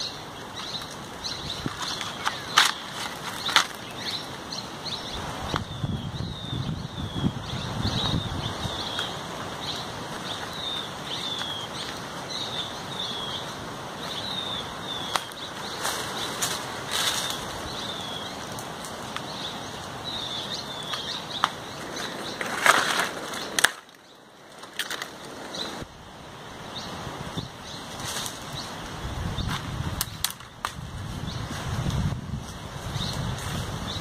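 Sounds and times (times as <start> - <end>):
bird chirping: 0.0 - 24.3
leaves and twigs rustling: 0.0 - 34.0
wind rumble on microphone: 4.8 - 11.4, 26.7 - 34.0.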